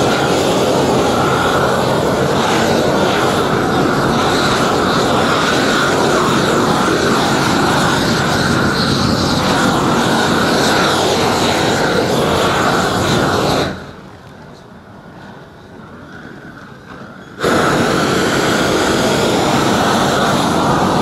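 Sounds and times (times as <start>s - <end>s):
roofing torch burning: 0.0s - 14.6s, 17.1s - 21.0s.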